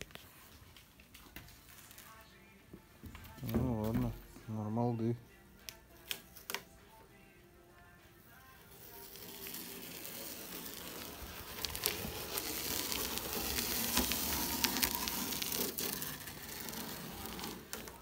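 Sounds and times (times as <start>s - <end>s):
wood scraping along sheet metal: 8.8s - 18.0s.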